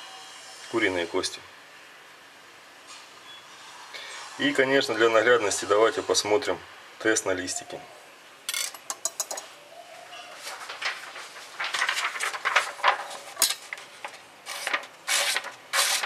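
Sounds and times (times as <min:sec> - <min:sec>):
knife scraping paper: 0:10.4 - 0:16.0
paper crumpling and tearing: 0:10.4 - 0:16.0.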